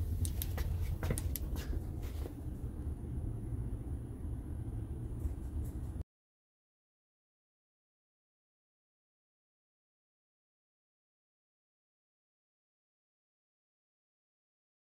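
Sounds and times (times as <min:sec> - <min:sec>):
steady low rumble: 0:00.0 - 0:06.0
sharp clicks: 0:00.2 - 0:01.6.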